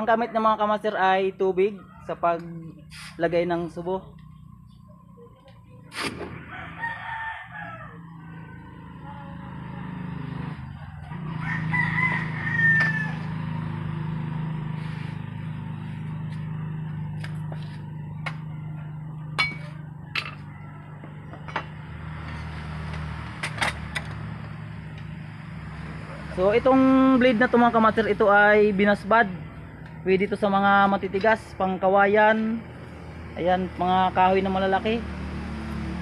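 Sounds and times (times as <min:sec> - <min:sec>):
rooster crowing: 0:06.4 - 0:09.2, 0:10.6 - 0:13.6, 0:19.8 - 0:21.5.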